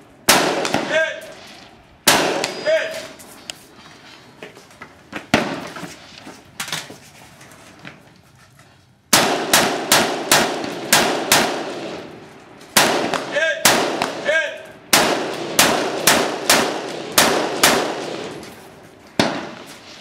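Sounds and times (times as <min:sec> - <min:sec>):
rifle gunshots: 0:00.2 - 0:03.1, 0:05.3 - 0:05.7, 0:09.1 - 0:20.0.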